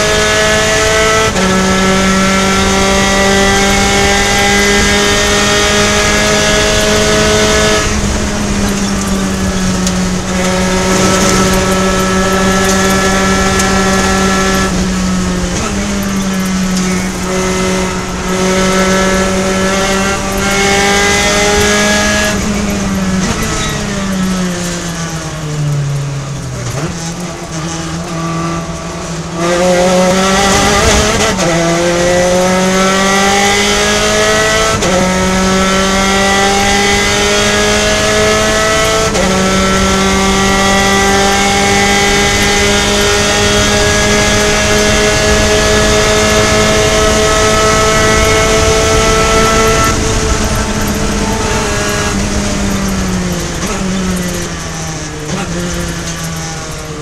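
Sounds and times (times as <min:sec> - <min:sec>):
race car engine revving: 0:00.0 - 0:57.0
wind rushing: 0:03.3 - 0:23.9, 0:39.3 - 0:55.4.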